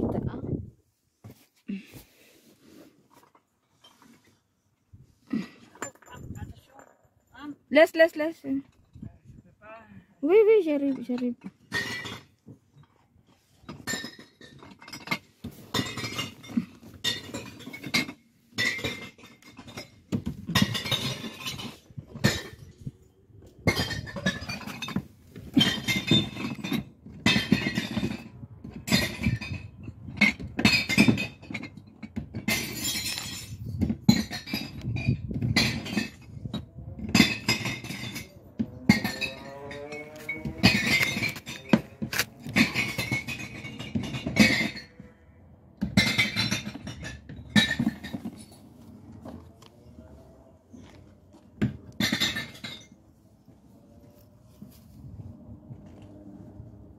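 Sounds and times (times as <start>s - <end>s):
glass bottles clinking and smashing: 11.0s - 12.9s, 13.6s - 22.9s, 23.6s - 45.0s, 45.8s - 48.7s, 52.0s - 53.0s.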